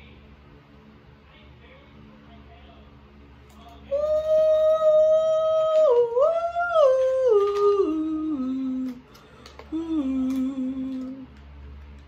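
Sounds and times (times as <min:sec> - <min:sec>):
woman humming: 0:03.9 - 0:09.0, 0:09.6 - 0:11.3.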